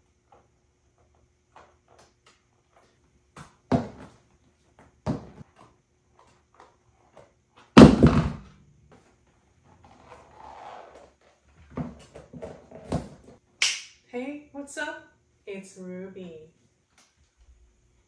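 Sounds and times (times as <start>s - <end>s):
heels tapping on hard floor: 3.3s - 4.2s, 4.8s - 5.6s, 7.8s - 8.5s
shoe thudding on floor: 3.3s - 4.2s, 4.8s - 5.4s, 7.8s - 8.5s.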